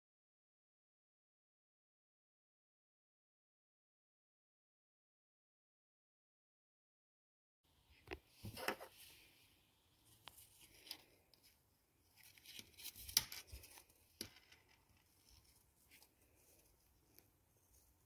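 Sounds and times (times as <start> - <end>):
soft rustling: 7.9 - 18.0.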